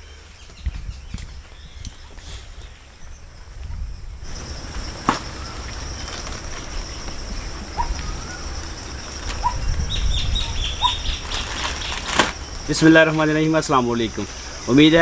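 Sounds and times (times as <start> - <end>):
high-pitched insect drone: 4.2 - 15.0
bird chirps: 4.3 - 12.8.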